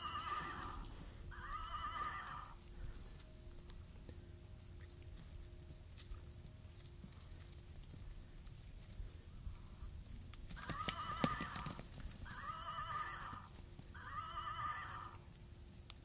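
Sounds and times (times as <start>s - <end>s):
toy horse whinny: 0.0s - 2.5s, 12.3s - 13.4s, 14.0s - 15.2s.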